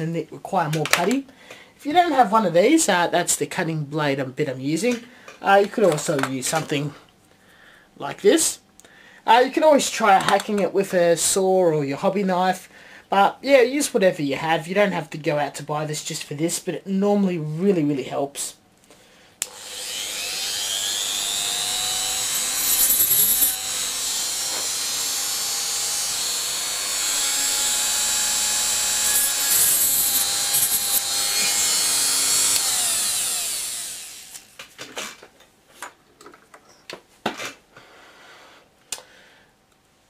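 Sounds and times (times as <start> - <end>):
rotary tool cutting plastic: 19.5 - 34.5.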